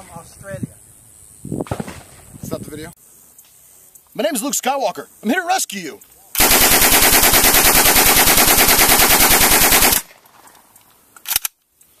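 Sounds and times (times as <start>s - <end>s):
submachine gun full-auto burst: 6.4s - 10.1s.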